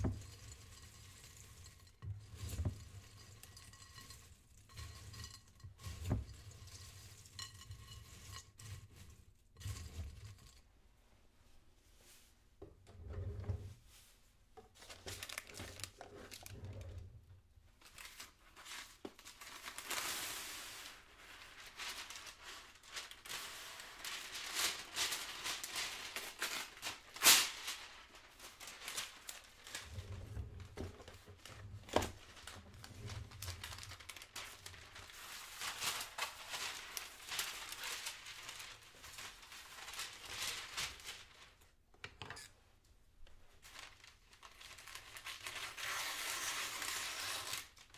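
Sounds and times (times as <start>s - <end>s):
packaging crinkling and rustling: 14.7s - 17.2s, 17.8s - 41.8s, 43.2s - 47.9s.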